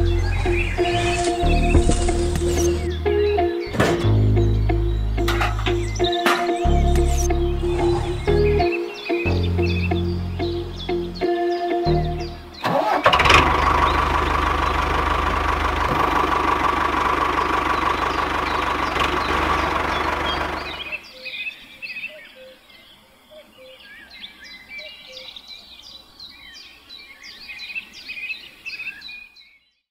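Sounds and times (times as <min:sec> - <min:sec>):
small tractor engine running: 0:00.0 - 0:02.9, 0:12.6 - 0:21.0
birds chirping: 0:00.0 - 0:29.9.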